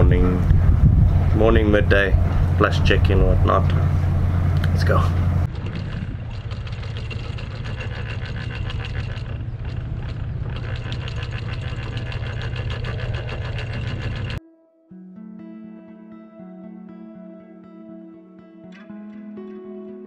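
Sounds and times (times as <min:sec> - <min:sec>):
boat engine running: 0:00.0 - 0:14.4.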